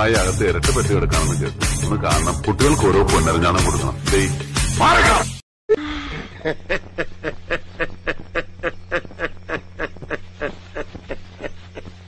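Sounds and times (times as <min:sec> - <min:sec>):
man snickering laugh: 0:05.8 - 0:12.0.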